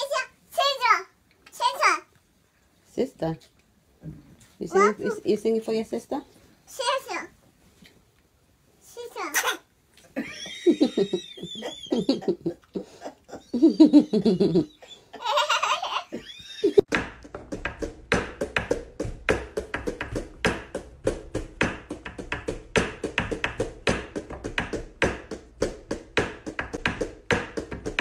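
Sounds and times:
small child's voice: 0.0s - 2.1s, 4.6s - 5.2s, 6.7s - 7.4s, 8.8s - 9.7s
high squeal: 11.2s - 12.0s.

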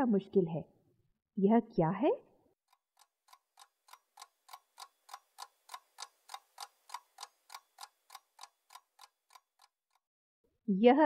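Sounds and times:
clock ticking: 2.7s - 10.1s.

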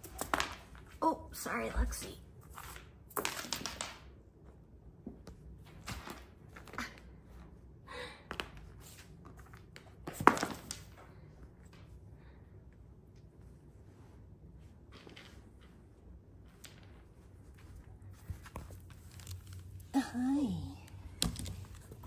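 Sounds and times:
sticks and paws tapping wooden floor: 0.0s - 1.0s, 2.6s - 4.2s, 8.3s - 11.9s, 20.8s - 22.0s.

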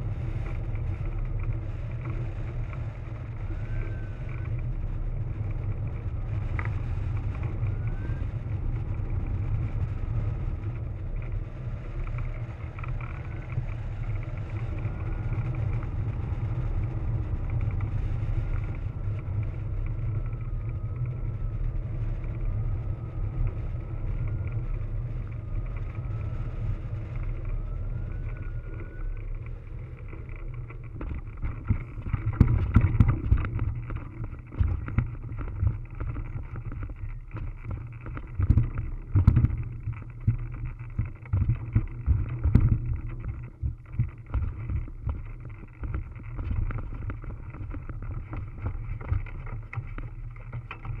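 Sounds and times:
wind rumbling on microphone: 0.0s - 51.0s
thumps and rattles: 30.7s - 51.0s.

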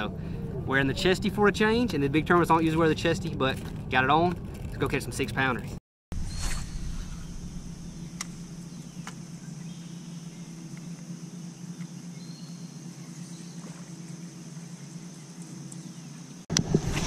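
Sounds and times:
insect drone: 6.2s - 16.5s
electric trolling motor hum: 7.3s - 16.9s.

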